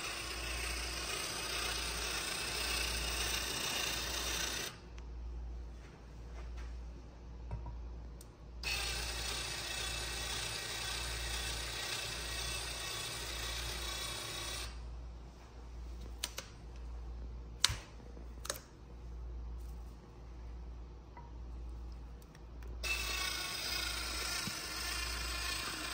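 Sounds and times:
drill cutting metal: 0.0s - 4.8s, 8.6s - 14.8s, 22.8s - 25.9s.

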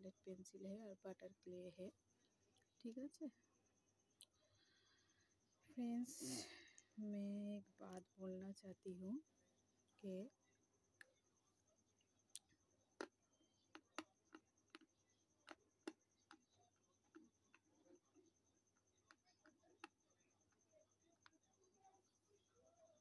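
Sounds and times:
faint high whine: 0.0s - 23.0s
crunchy chewing clicks: 12.3s - 17.7s, 19.0s - 20.6s.

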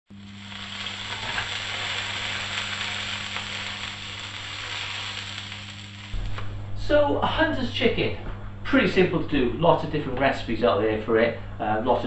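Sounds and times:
chicken sizzling in griddle pan: 0.1s - 6.2s.

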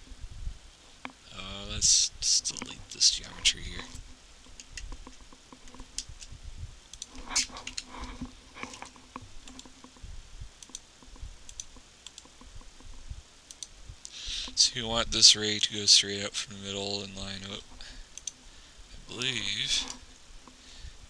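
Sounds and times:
computer mouse clicks: 4.4s - 6.3s, 6.9s - 10.0s, 10.6s - 13.7s, 18.2s - 18.4s.

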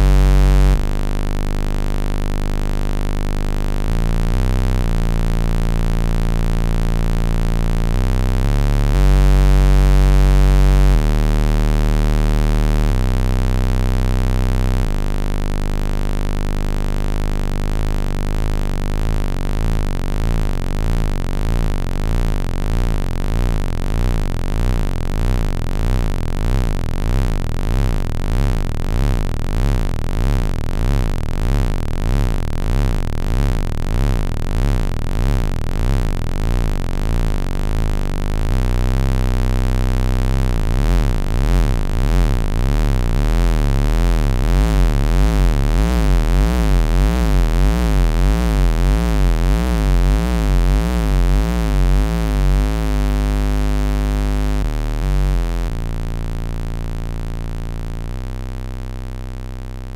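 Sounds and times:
deep synthesizer bass notes: 0.0s - 59.9s
wobbling synthesizer tone: 40.1s - 55.8s.

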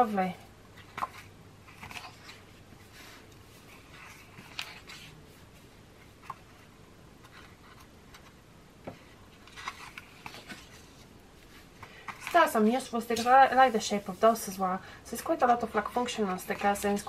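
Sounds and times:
paper rustling: 0.8s - 14.6s.

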